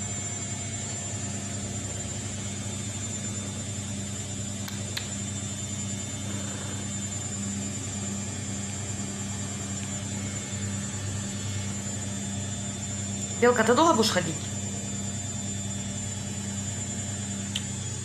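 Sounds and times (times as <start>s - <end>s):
cat purring: 6.2s - 7.1s.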